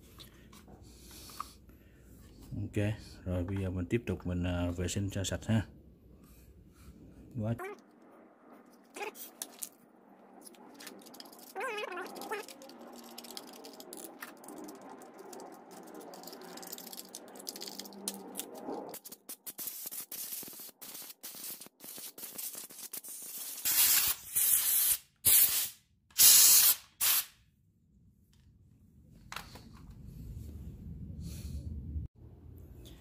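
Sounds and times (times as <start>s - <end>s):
hissing spray bursts: 19.0s - 27.3s.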